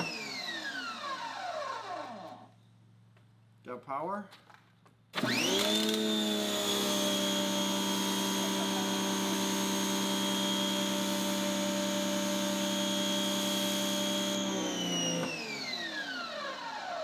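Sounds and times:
pressure washer humming: 5.2 - 16.5.

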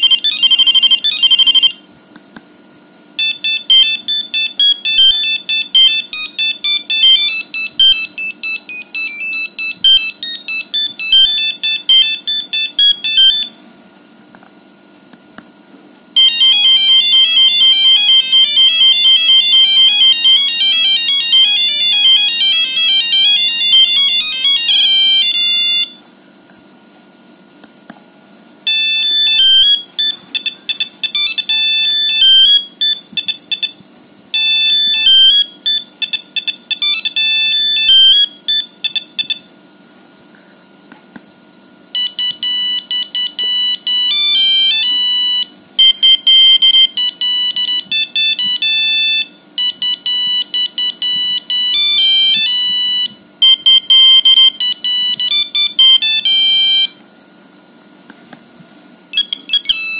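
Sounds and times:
electronic beep ringtone melodies: 0.0 - 1.8, 3.2 - 13.5, 16.2 - 26.0, 28.7 - 33.8, 34.4 - 39.4, 42.0 - 57.0, 59.1 - 59.9.

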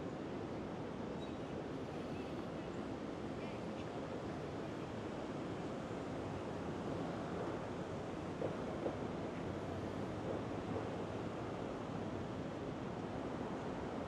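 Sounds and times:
city ambience at night: 0.0 - 14.0.

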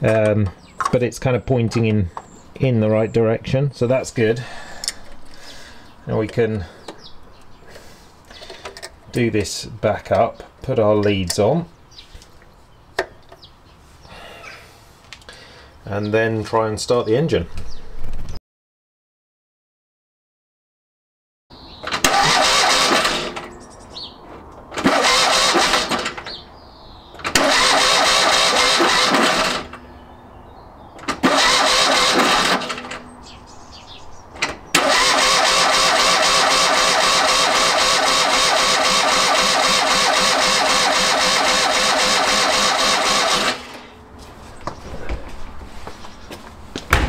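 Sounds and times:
engine starter cranking: 21.8 - 23.5, 24.8 - 26.4, 27.2 - 29.8, 31.0 - 33.1, 34.4 - 43.9
engine running steadily: 27.3 - 29.8, 34.8 - 43.9.

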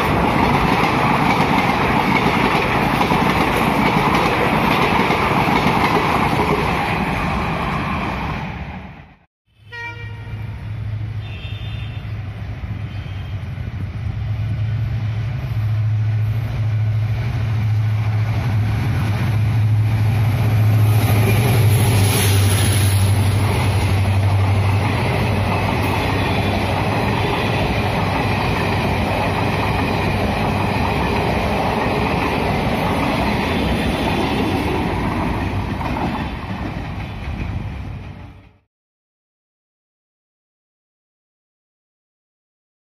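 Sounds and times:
train wheels rattling on rails: 0.0 - 8.2, 14.8 - 38.6
diesel locomotive engine drone: 9.9 - 38.6.

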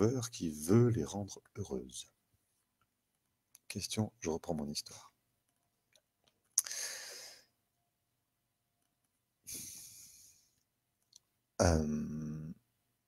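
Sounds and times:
breaths into microphone: 6.6 - 7.5.

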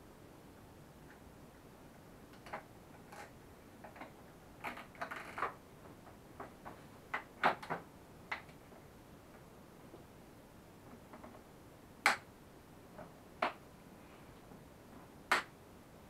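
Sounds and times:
clicks and taps of plastic parts: 2.3 - 8.6.

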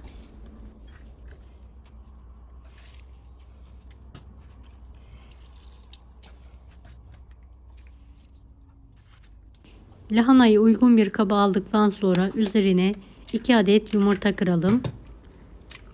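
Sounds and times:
water dripping: 5.2 - 6.5.

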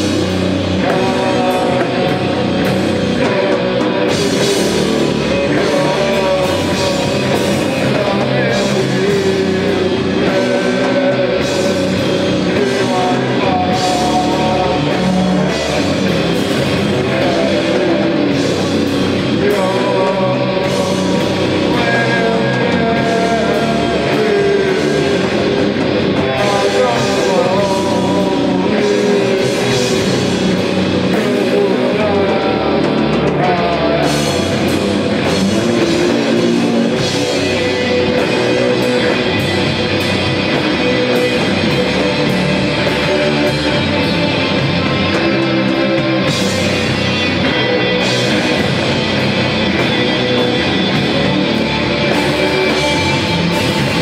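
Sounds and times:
live rock band playing: 0.0 - 54.0
person singing: 0.0 - 54.0.

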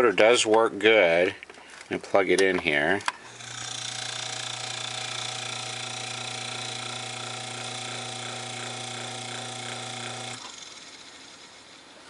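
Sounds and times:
electric motor humming and whirring: 3.2 - 12.0.

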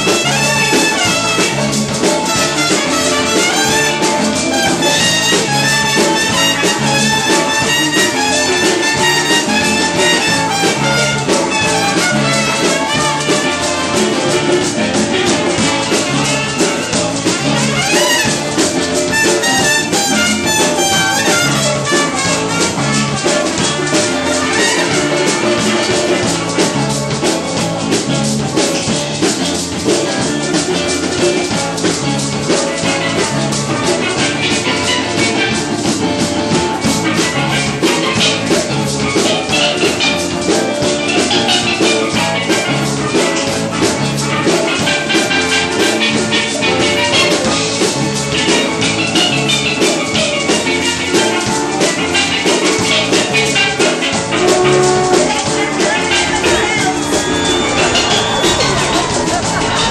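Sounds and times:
drum kit beat: 0.0 - 59.9
steel pan melody: 15.2 - 27.0, 53.0 - 59.9.

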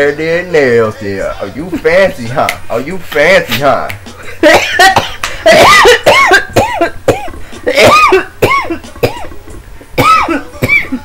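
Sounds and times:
woman laughing high-pitched: 4.4 - 6.5.

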